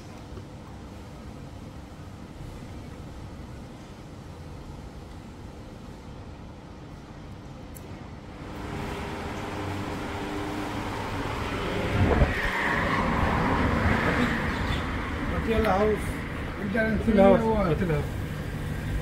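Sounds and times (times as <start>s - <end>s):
street traffic engines: 7.8s - 19.0s.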